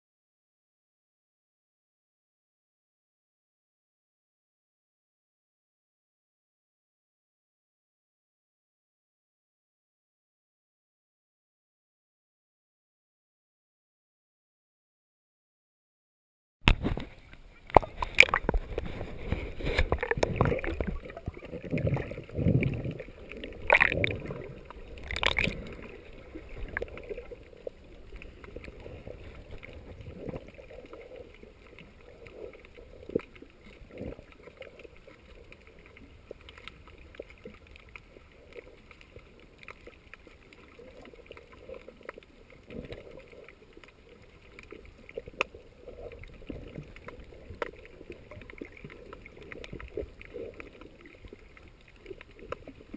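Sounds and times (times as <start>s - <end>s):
muffled underwater gurgling: 16.7s - 40.0s
faint clicks: 19.7s - 52.9s.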